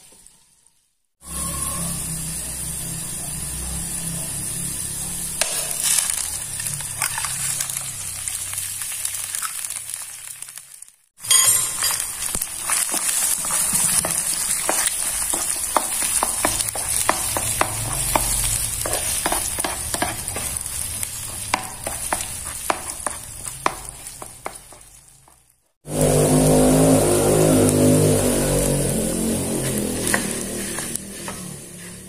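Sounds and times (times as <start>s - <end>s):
egg sizzling in oil: 0.0s - 32.0s
wooden spatula scraping a pan: 11.5s - 26.1s, 29.1s - 32.0s.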